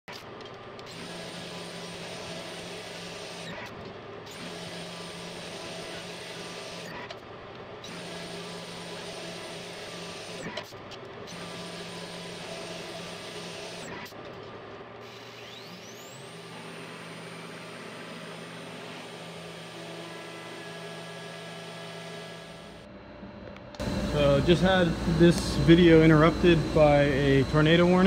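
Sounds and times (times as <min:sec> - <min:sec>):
low machine hum: 0:10.2 - 0:28.0.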